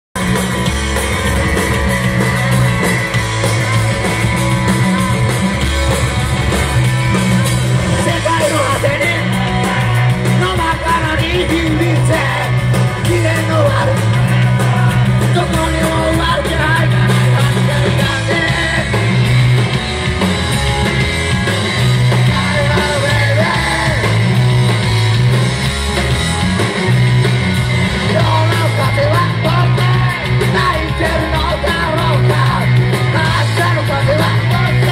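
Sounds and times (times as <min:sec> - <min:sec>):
repeating bass line: 0:00.1 - 0:34.9
live rock band playing: 0:00.2 - 0:34.9
person singing: 0:07.9 - 0:19.3, 0:22.1 - 0:24.3, 0:28.0 - 0:34.9.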